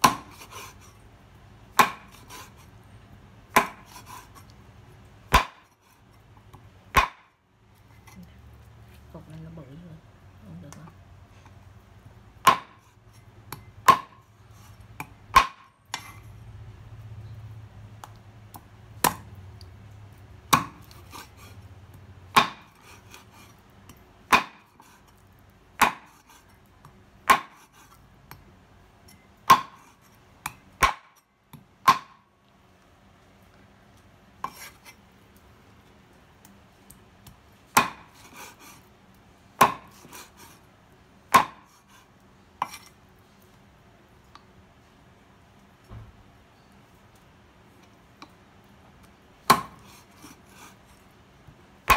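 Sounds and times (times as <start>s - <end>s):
cleaver chopping on wooden board: 0.0s - 0.6s, 1.7s - 2.5s, 3.5s - 4.2s, 5.3s - 5.7s, 6.9s - 7.3s, 12.4s - 12.9s, 13.5s - 14.2s, 15.0s - 16.1s, 19.0s - 19.3s, 20.5s - 21.3s, 22.3s - 23.2s, 24.3s - 24.9s, 25.8s - 26.3s, 27.2s - 27.7s, 29.5s - 31.1s, 31.8s - 32.2s, 37.7s - 38.6s, 39.6s - 40.3s, 41.3s - 41.7s, 49.5s - 50.3s.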